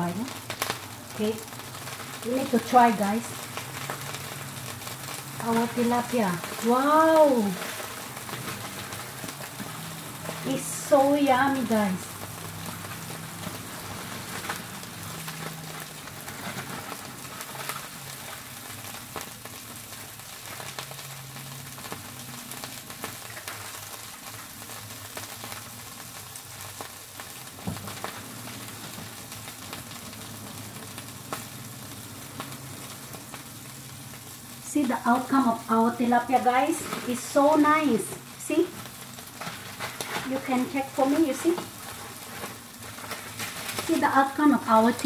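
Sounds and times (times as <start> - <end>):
fish sizzling on grill: 0.0 - 45.0
foil rustling: 0.0 - 45.0.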